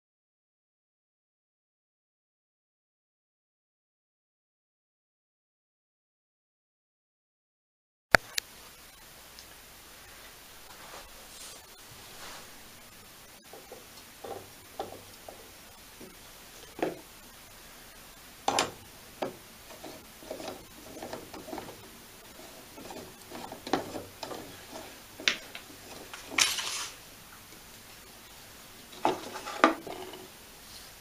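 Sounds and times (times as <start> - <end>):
rubbing scrape: 10.6 - 12.7, 18.5 - 27.0, 29.0 - 30.9
metal parts clicking and knocking: 18.5 - 27.0.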